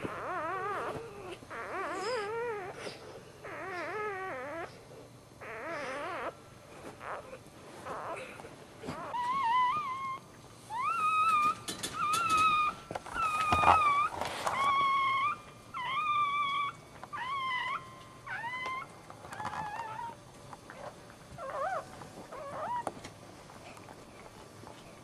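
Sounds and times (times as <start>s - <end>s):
puppy squealing: 0.0s - 4.8s, 5.4s - 6.4s, 7.0s - 8.3s, 8.9s - 20.2s, 21.4s - 22.9s.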